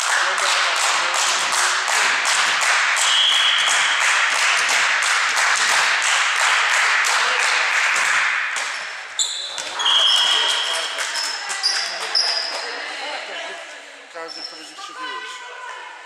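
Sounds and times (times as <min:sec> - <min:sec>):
crowd clapping in rhythm: 0:00.0 - 0:12.8
referee's whistle blast: 0:03.0 - 0:04.0.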